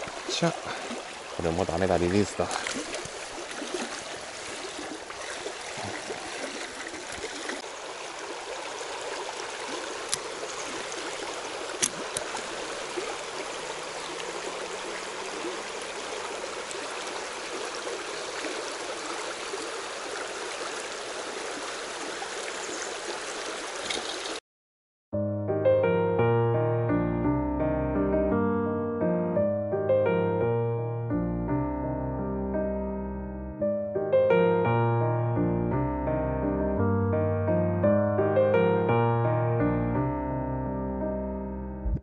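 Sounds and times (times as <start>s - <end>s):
stream rushing over stones: 0.0s - 24.4s.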